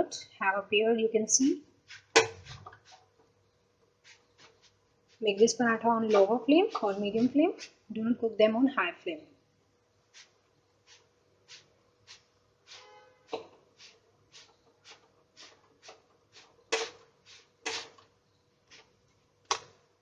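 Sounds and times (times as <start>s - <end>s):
cloth scuffing bread on griddle: 1.8s - 3.0s.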